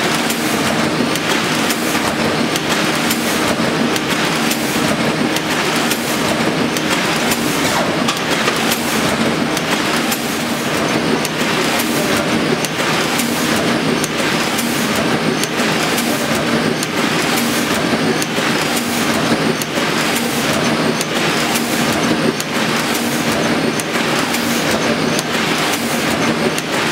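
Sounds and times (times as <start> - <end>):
printing press clattering: 0.0 - 26.9.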